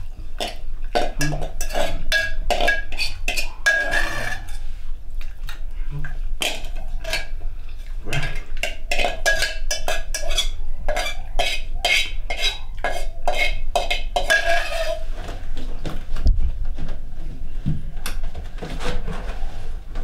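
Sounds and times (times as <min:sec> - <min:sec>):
scraping in a steel bowl: 0:00.0 - 0:05.0, 0:06.4 - 0:15.5
steel bowl ringing: 0:01.2 - 0:04.6.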